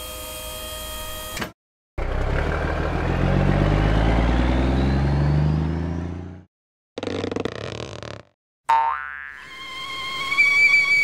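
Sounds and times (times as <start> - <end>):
cartoon truck engine starting: 2.0 - 7.9.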